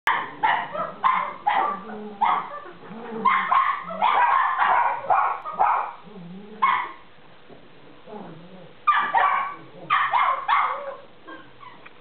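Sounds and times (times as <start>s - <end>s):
dogs growling low: 0.1s - 4.2s, 6.0s - 6.7s, 7.8s - 8.8s, 9.5s - 10.0s
small dogs yapping barks: 0.1s - 6.0s, 6.6s - 7.0s, 8.9s - 11.8s.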